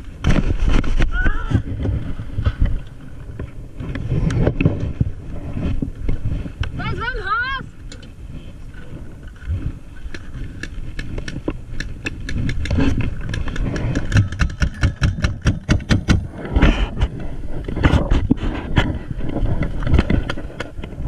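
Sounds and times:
paintball markers popping: 10.1s - 16.2s.

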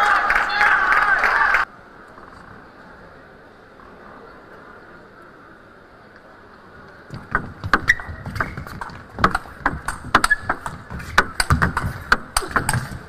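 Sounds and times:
table tennis ball clicking: 7.1s - 13.0s.

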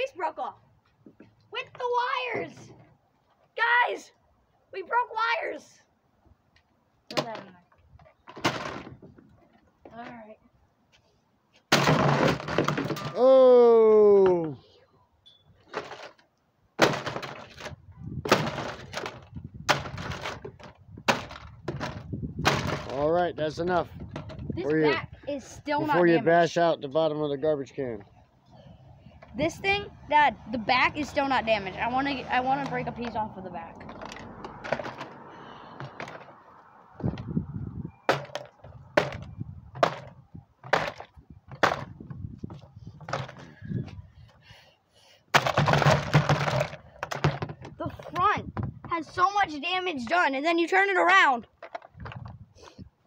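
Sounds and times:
sledgehammer whacking plastic: 11.7s - 13.1s.

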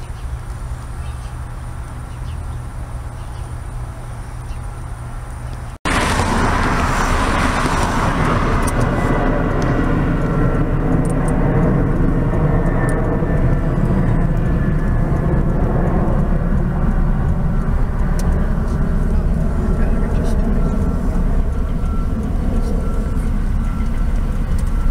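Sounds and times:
vehicle rumble inside a car: 5.4s - 24.9s.

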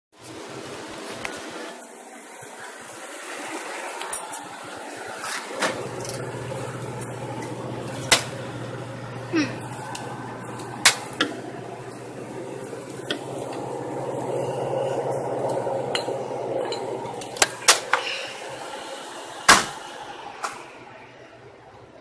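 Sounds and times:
drink cooler hum: 5.4s - 21.9s.

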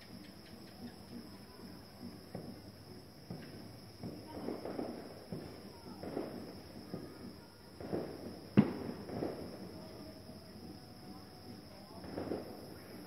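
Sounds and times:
firecrackers popping: 0.0s - 13.0s.

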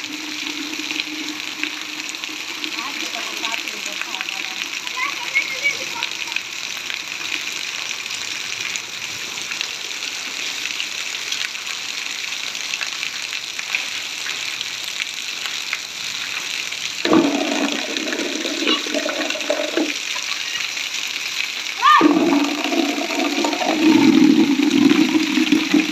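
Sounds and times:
heavy rain on concrete: 0.0s - 25.9s
children's voices: 18.3s - 20.7s.

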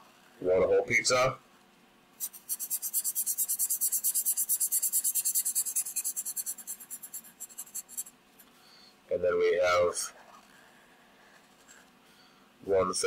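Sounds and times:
marker scribbling on paper: 2.2s - 8.1s.

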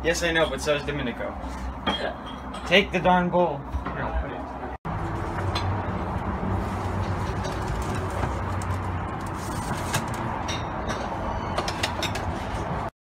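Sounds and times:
ceramic dishes clinking: 1.8s - 2.9s.

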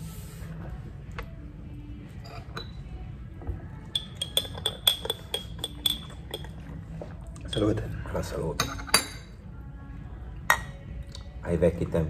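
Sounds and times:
teaspoon clinking in ceramic cup: 2.2s - 2.8s, 3.9s - 6.7s, 7.4s - 7.9s.

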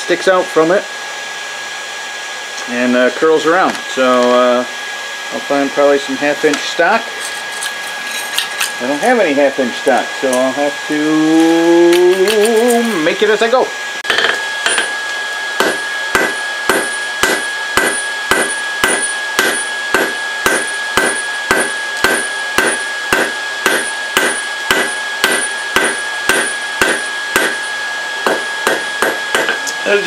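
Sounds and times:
hammer striking hot steel on anvil: 14.0s - 15.0s, 15.6s - 29.7s.

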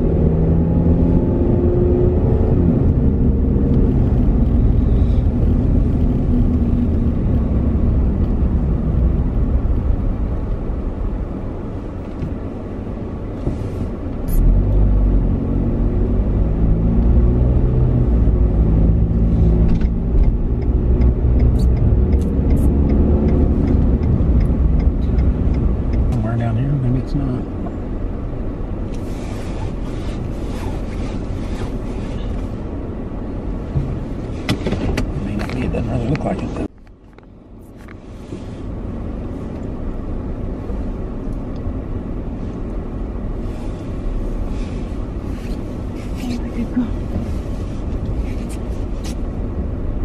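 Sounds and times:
car engine and tyre rumble: 0.0s - 50.0s
light ticks: 19.7s - 26.2s.

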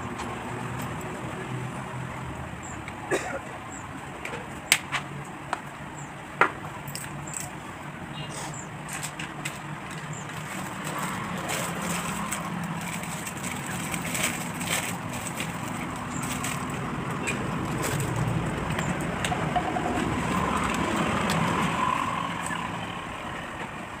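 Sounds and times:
plastic bottles being handled: 8.8s - 21.9s
plastic packet crinkling: 10.4s - 17.0s.

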